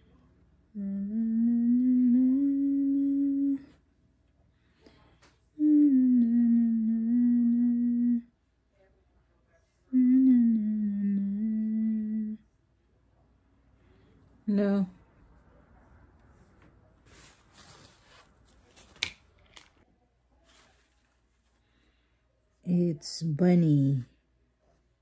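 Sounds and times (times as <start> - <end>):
woman humming: 0.7 - 3.8, 5.6 - 8.4, 9.9 - 12.6.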